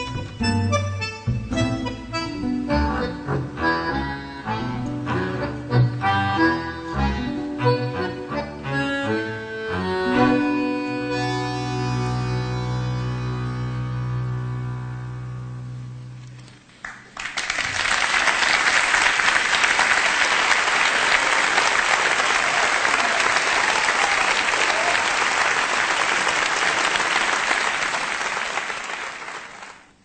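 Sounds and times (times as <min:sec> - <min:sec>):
bandoneon held chord: 0:00.0 - 0:16.2
audience applause: 0:16.8 - 0:30.0.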